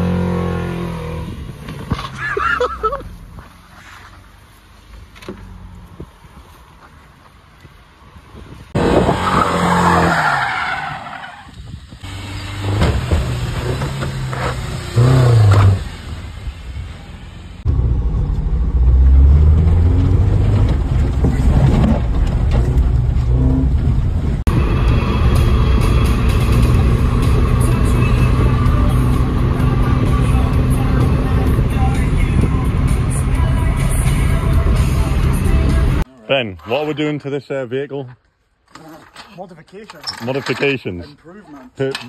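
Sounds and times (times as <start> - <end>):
tyres skidding: 0.0 - 42.0
car engine revving hard: 12.0 - 16.0.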